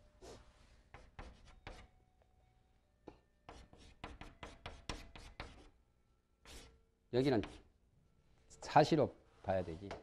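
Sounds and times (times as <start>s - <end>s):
chalk scratching on blackboard: 0.2s - 1.9s, 3.5s - 5.7s, 6.4s - 7.7s.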